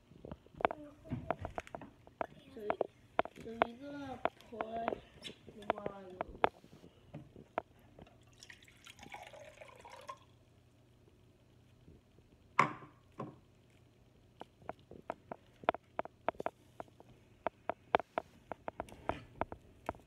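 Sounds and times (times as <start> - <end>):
small clicks and drips: 7.4 - 10.4, 13.6 - 20.0
water pouring into a glass: 8.2 - 10.4.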